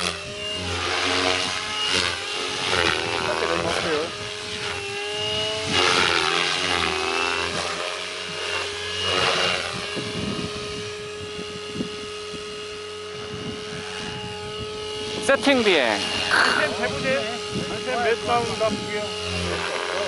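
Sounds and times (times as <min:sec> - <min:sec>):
rc helicopter motor whine: 0:00.0 - 0:20.0.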